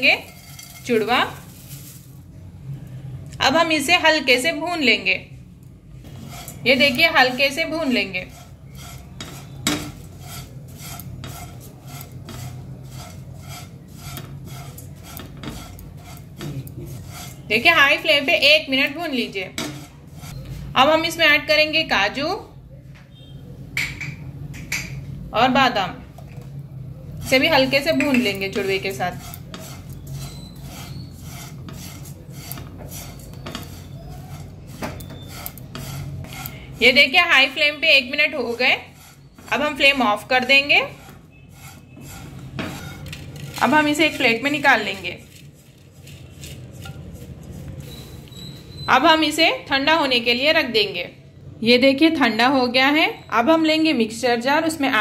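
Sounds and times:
spatula scraping rice in pan: 0:00.0 - 0:01.9, 0:06.0 - 0:20.5, 0:27.2 - 0:48.2.

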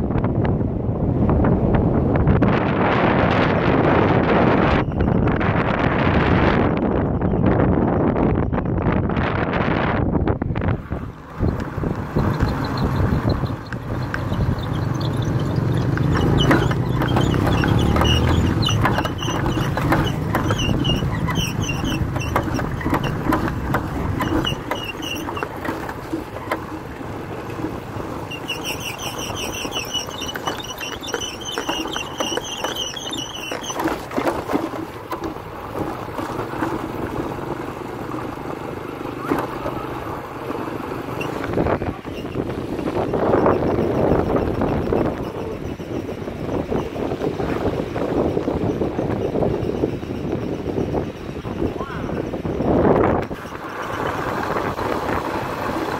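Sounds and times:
motorbike engine rumble: 0:00.0 - 0:55.9
wind buffeting microphone: 0:00.0 - 0:55.9
knocks and rattles: 0:11.4 - 0:38.5.

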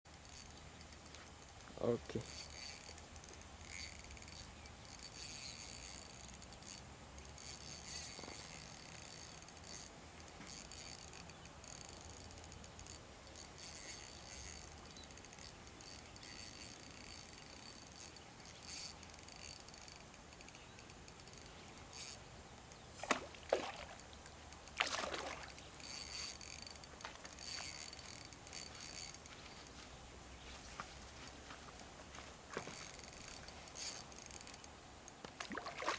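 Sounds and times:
faint high insect buzz: 0:00.1 - 0:35.9.

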